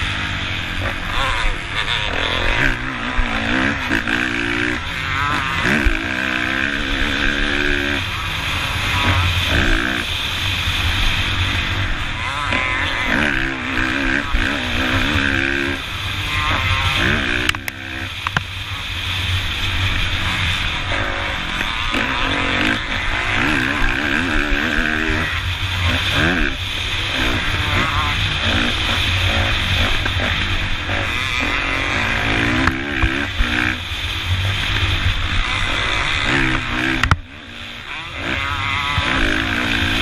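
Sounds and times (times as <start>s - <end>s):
dirt bike engine revving: 0.0s - 40.0s
wind noise on microphone: 0.0s - 40.0s.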